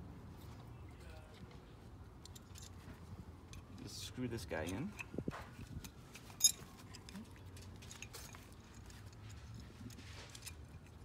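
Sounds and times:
small metal parts rattling: 0:02.2 - 0:02.8, 0:04.6 - 0:11.0.

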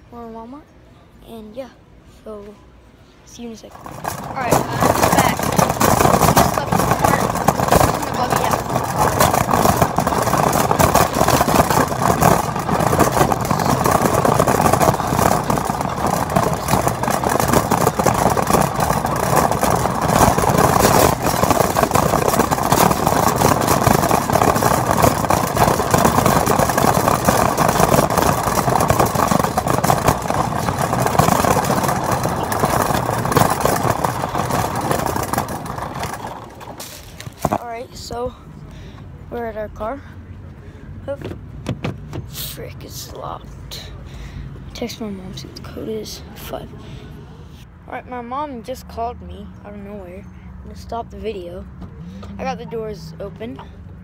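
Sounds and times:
shopping cart rattling on asphalt: 0:03.5 - 0:38.3, 0:41.1 - 0:44.0.

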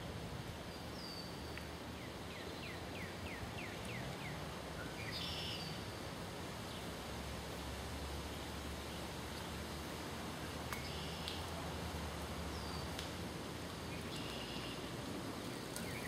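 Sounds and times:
outdoor background noise: 0:00.0 - 0:16.0
bird calls: 0:13.9 - 0:16.0.

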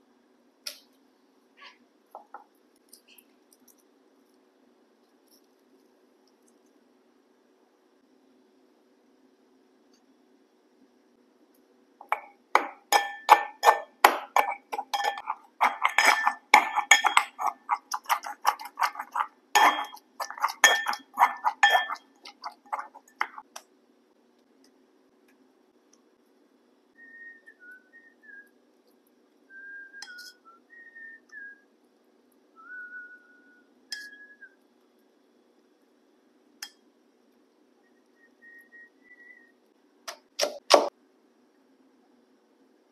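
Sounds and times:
metal pestle clinking in mortar: 0:12.0 - 0:23.4.

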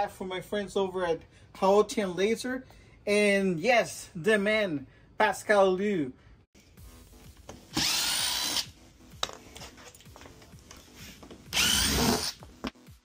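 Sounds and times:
cordless drill bursts: 0:07.7 - 0:08.8, 0:11.5 - 0:12.4.

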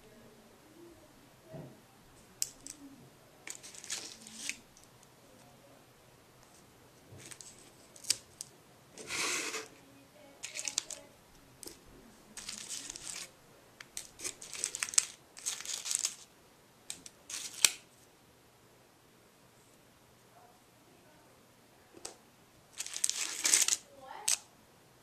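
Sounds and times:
small items rustling: 0:02.4 - 0:05.5, 0:06.4 - 0:09.8, 0:10.4 - 0:16.3, 0:16.9 - 0:17.8, 0:22.7 - 0:24.4
aluminium foil crinkling: 0:03.5 - 0:04.9, 0:07.2 - 0:08.5, 0:10.4 - 0:16.3, 0:17.0 - 0:17.8, 0:22.7 - 0:24.4.

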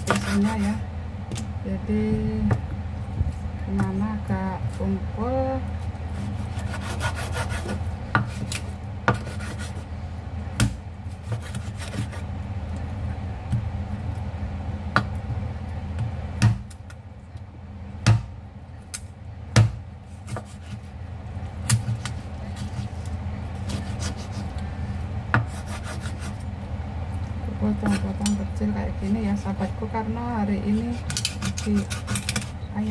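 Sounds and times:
steady low hum: 0:00.0 - 0:32.9
meat scraping: 0:06.0 - 0:09.9, 0:11.1 - 0:12.3, 0:20.0 - 0:21.0, 0:21.7 - 0:24.6, 0:25.4 - 0:26.5, 0:30.7 - 0:32.6
cleaver chopping on wooden board: 0:18.1 - 0:18.3, 0:19.6 - 0:20.8.

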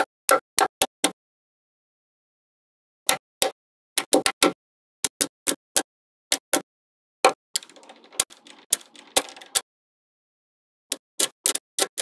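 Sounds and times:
balls rattling: 0:07.6 - 0:09.6
magnetic balls clicking: 0:07.6 - 0:09.6.

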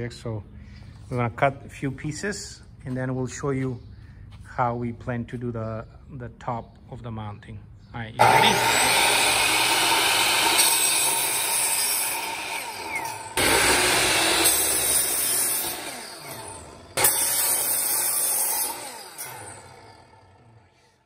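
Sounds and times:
miter saw cutting wood: 0:08.2 - 0:21.0
saw motor winding down whine: 0:08.2 - 0:21.0.

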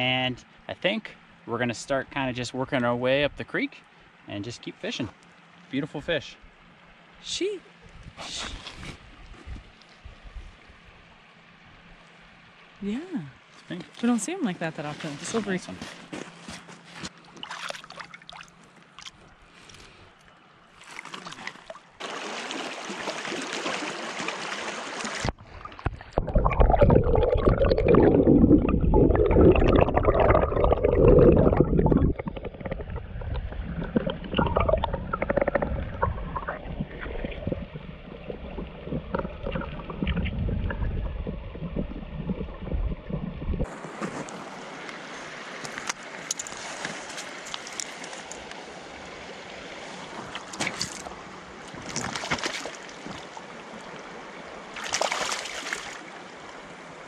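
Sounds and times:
creek water running over gravel: 0:08.2 - 0:20.0, 0:20.7 - 0:56.8
muffled underwater flow: 0:22.0 - 0:52.2.

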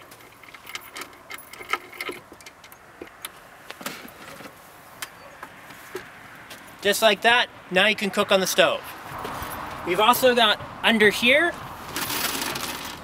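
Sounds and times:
light metallic rattling: 0:00.0 - 0:04.6.

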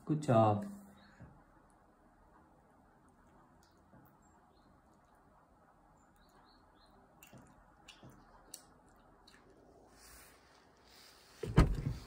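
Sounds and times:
child chewing food: 0:01.3 - 0:10.9
loud thump: 0:11.4 - 0:12.0.

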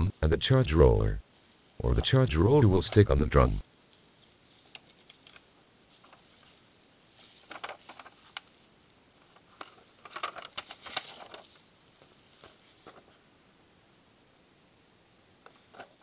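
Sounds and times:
paper crackling and rustling: 0:09.6 - 0:11.6.

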